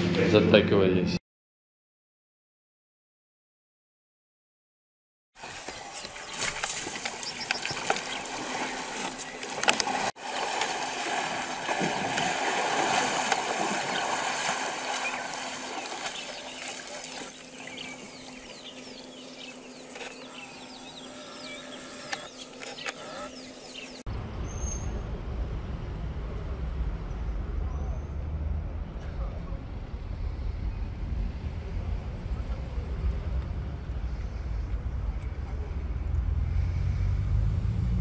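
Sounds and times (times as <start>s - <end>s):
small birds chirping: 5.4s - 9.7s, 13.7s - 24.9s
elephants splashing through water: 5.4s - 18.8s
water sloshing: 5.4s - 20.8s.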